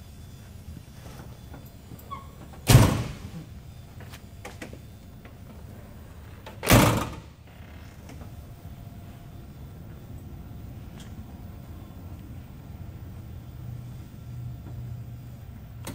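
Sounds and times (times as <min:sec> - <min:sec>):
car door slamming: 0:02.5 - 0:03.4, 0:06.6 - 0:07.3.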